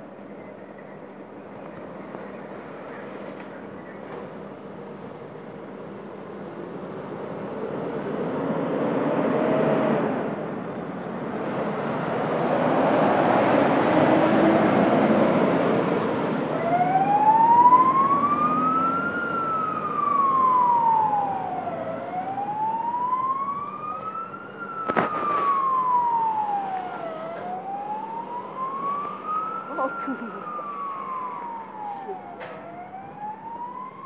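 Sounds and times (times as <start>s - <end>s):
fire engine driving past: 0.0s - 34.0s
siren wailing: 11.9s - 34.0s.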